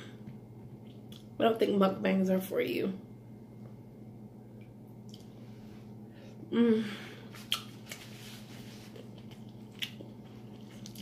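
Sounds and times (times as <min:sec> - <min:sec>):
person humming mm: 0:06.5 - 0:07.2
person eating: 0:07.1 - 0:11.0
wet lip smacks: 0:07.4 - 0:08.0.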